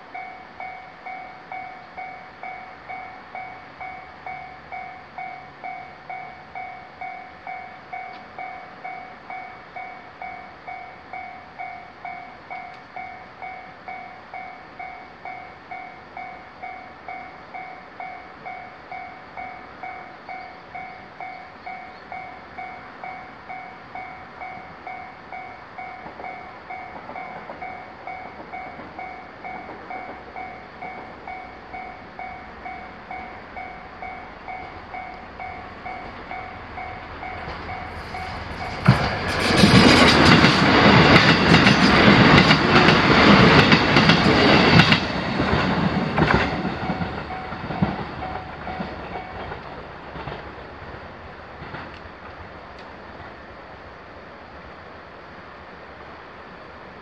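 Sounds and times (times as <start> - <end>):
railroad crossing warning bell: 0.0 - 50.4
rushing noise: 15.6 - 57.0.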